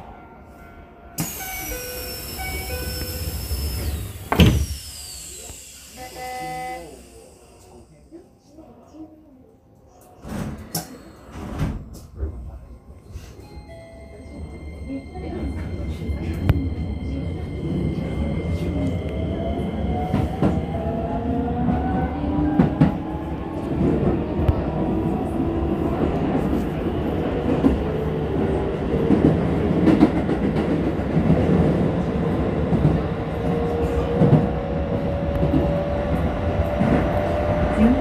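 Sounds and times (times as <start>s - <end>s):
electric train motor whine: 1.2s - 8.2s
wheels rumbling on rail: 14.0s - 38.0s.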